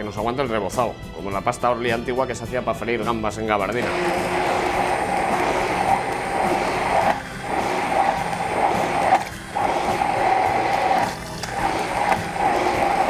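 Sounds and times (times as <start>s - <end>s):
immersion blender whirring: 3.8s - 13.0s.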